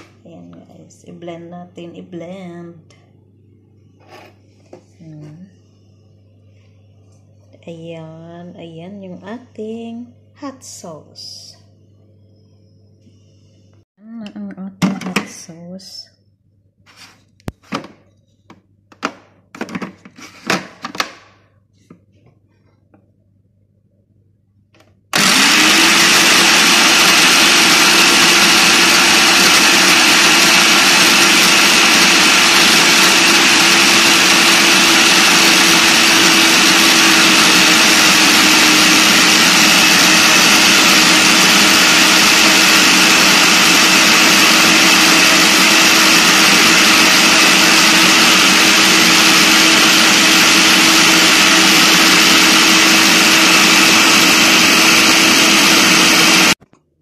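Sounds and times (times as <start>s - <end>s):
blender motor whine: 25.1s - 56.6s.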